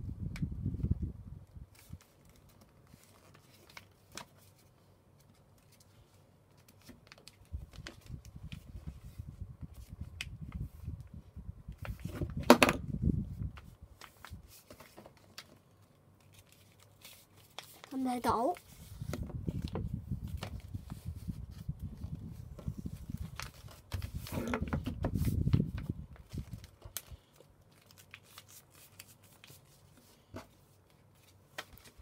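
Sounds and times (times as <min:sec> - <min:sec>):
paper rustling and rubbing: 0:01.7 - 0:10.9, 0:13.2 - 0:32.0.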